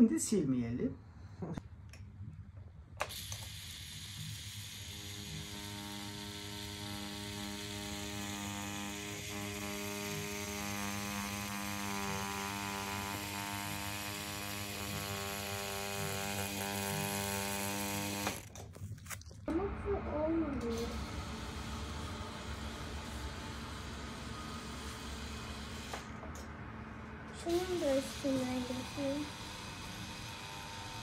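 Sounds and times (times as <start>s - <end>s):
tattoo machine buzzing: 3.0s - 18.5s, 20.7s - 26.2s, 27.5s - 31.0s.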